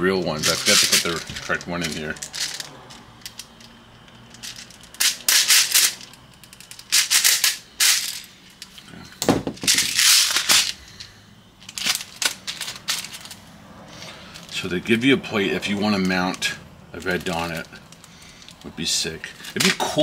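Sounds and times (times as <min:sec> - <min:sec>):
handling knocks: 0:09.2 - 0:09.9.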